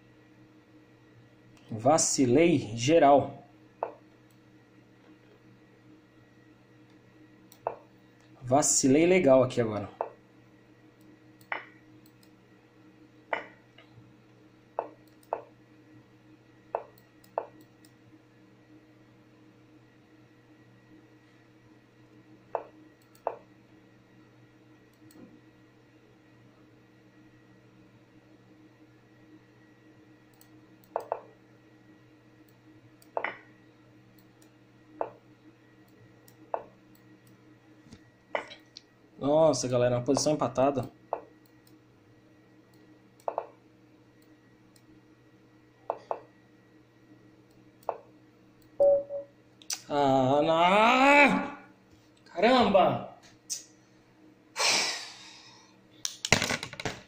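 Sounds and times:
faint electrical hum: 0.0 - 57.0.

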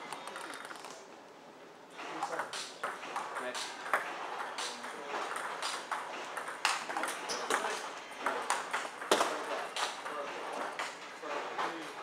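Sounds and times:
table tennis ball clicking: 0.0 - 1.0.

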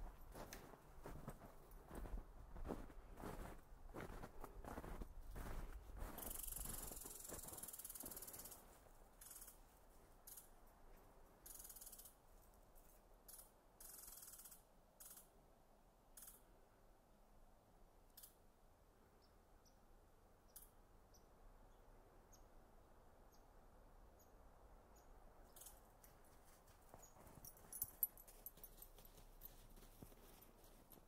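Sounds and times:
footsteps crunching on forest floor: 0.0 - 8.9, 26.3 - 31.0
tiny high ticks: 6.2 - 8.6, 9.2 - 9.6, 10.2 - 10.5, 13.2 - 15.3.

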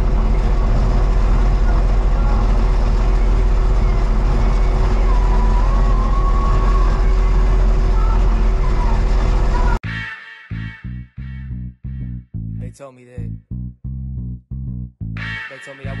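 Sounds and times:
diesel engine running: 0.0 - 9.8.

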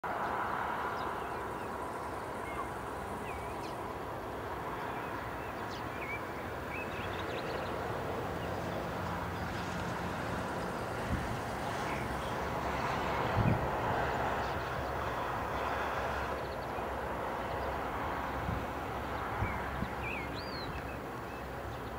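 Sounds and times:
approaching train low drone: 0.1 - 21.9
wind buffeting microphone: 9.3 - 21.9.

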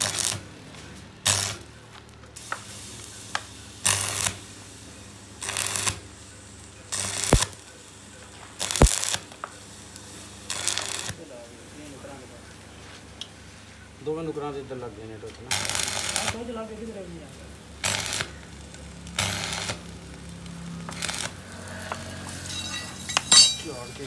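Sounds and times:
welding arc crackle: 0.0 - 0.5, 1.2 - 11.2, 15.4 - 24.0
low welder hum: 0.0 - 11.3, 15.5 - 16.9, 17.5 - 24.0.

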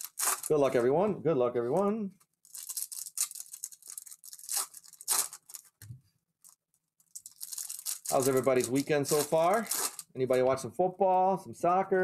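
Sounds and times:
wrapper tearing and crinkling: 0.0 - 0.7, 2.4 - 5.8, 6.4 - 10.1.

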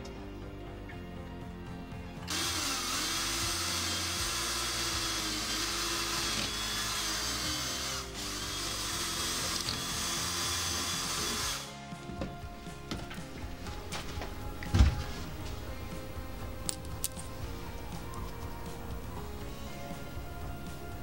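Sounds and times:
cordless drill boring into wood: 2.3 - 11.7.

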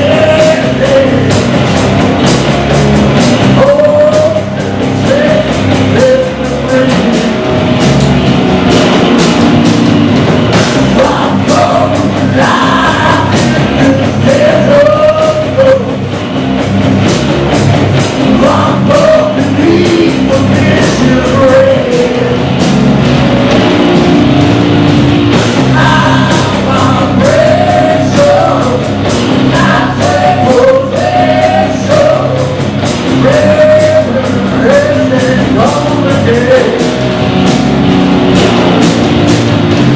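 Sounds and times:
man singing: 0.0 - 1.5, 3.5 - 7.4, 10.9 - 16.2, 18.2 - 22.6, 25.6 - 37.0
bass guitar: 0.0 - 39.9
drums: 0.0 - 39.9
electric guitar: 0.0 - 39.9.

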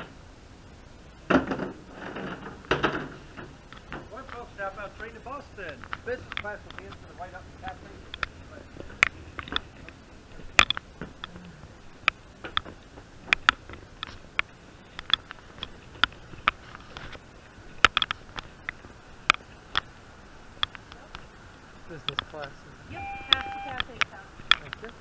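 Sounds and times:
low steady hum: 0.0 - 25.0
footsteps and knocks: 1.3 - 19.5.

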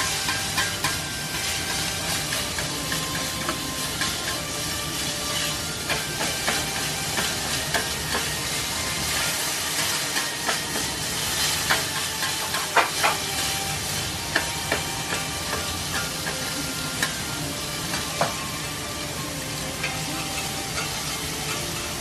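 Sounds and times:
chopsticks and spatula tapping: 0.0 - 1.1, 5.8 - 8.4, 9.7 - 11.0, 11.6 - 13.3, 14.2 - 16.4
noodles sizzling on griddle: 0.0 - 22.0.

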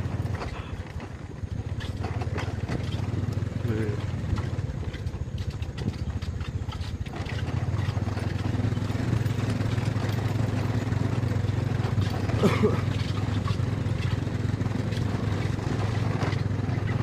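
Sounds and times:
small motorcycle engine running: 0.0 - 17.0.

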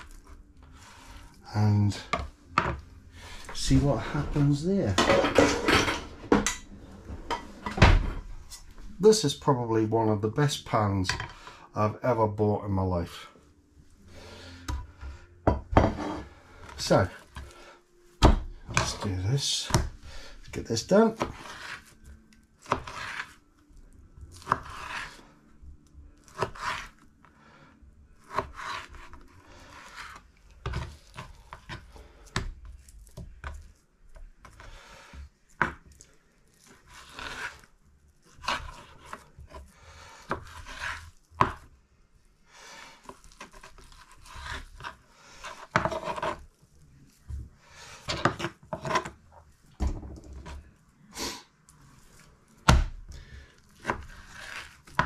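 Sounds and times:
knife slicing through meat: 21.2 - 22.0, 22.6 - 23.4, 24.3 - 25.2, 26.2 - 27.0, 36.6 - 37.7, 53.8 - 55.0.

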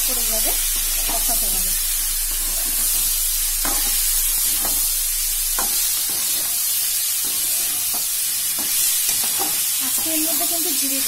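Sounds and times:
chicken sizzling in a pan: 0.0 - 11.0
spatula scraping a pan: 2.3 - 4.9, 5.6 - 10.6.

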